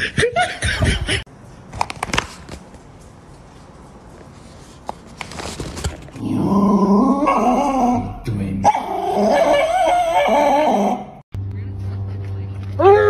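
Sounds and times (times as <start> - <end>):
dog whining: 6.8 - 11.2.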